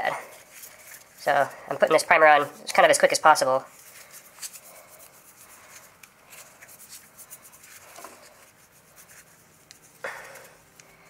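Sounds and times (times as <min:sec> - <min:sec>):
dauber scratching inside plastic pipe: 0:03.7 - 0:10.6.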